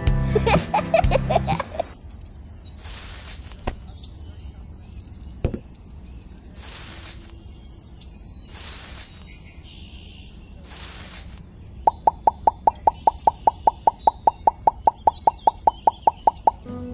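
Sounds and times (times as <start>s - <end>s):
plants rustling: 2.8s - 3.9s, 6.6s - 7.3s, 8.5s - 9.3s, 10.6s - 11.4s.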